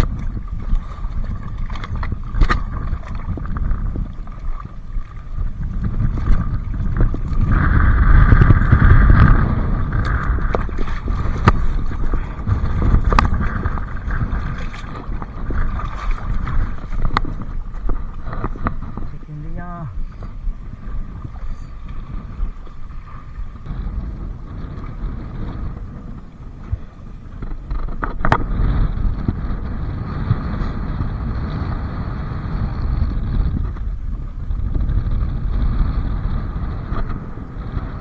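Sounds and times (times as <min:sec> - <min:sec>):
water splashing on rocky shore: 0:00.0 - 0:19.8
wind rumbling on microphone: 0:00.0 - 0:38.0.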